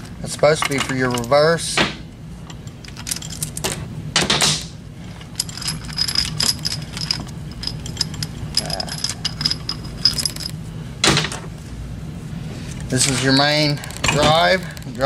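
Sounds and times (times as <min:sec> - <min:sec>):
low steady hum: 0:00.0 - 0:15.0
metal chain clinking and rattling: 0:02.5 - 0:03.8, 0:05.0 - 0:10.6.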